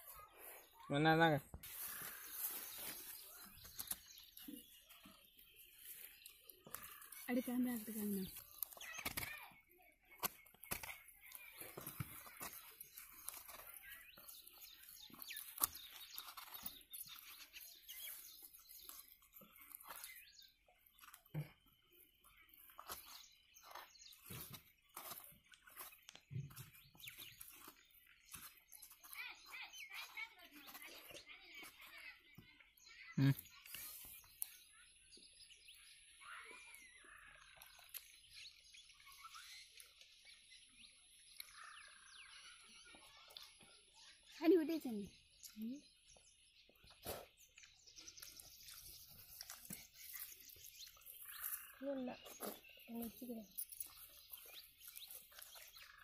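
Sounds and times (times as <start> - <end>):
birds chirping: 0.0 - 56.0
scraping coconut flesh: 10.1 - 20.3.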